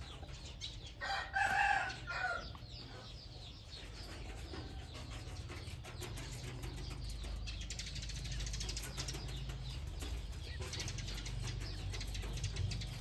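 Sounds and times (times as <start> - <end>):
chickens pecking metal trough: 3.8 - 13.0.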